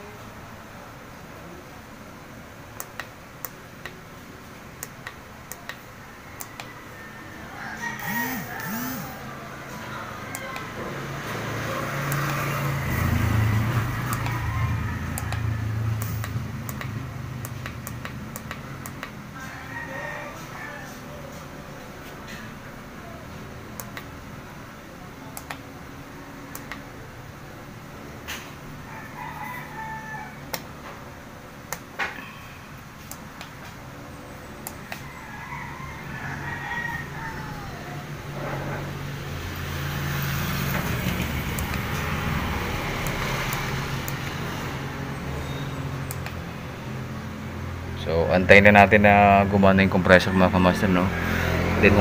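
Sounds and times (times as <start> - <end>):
rooster crowing: 6.0 - 16.2, 18.6 - 23.2, 28.8 - 30.8, 34.8 - 41.0, 49.8 - 52.0.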